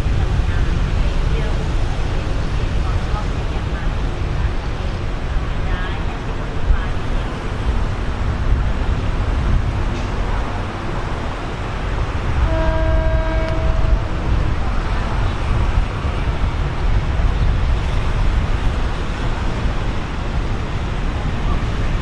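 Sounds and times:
steady low rumble: 0.0s - 22.0s
locomotive horn blast: 12.3s - 14.8s.

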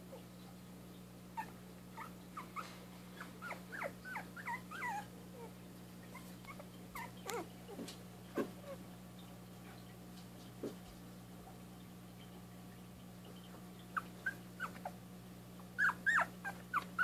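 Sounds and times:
puppies squeaking and whimpering: 1.3s - 8.8s, 13.4s - 15.0s, 15.8s - 17.0s.

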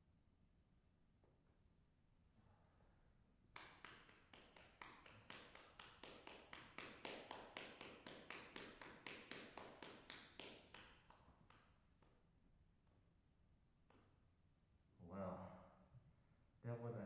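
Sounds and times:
hand clapping in a hall: 3.5s - 13.0s, 13.8s - 14.2s.

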